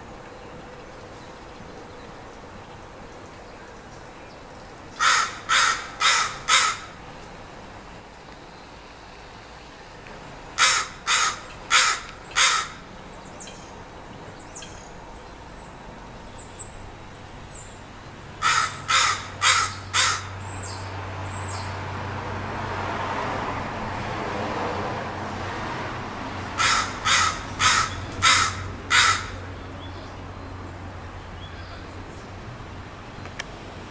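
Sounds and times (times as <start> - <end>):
crow cawing: 5.0 - 7.0, 10.6 - 12.9, 18.4 - 20.5, 26.6 - 29.5
small birds chirping: 11.1 - 21.8, 26.6 - 32.4.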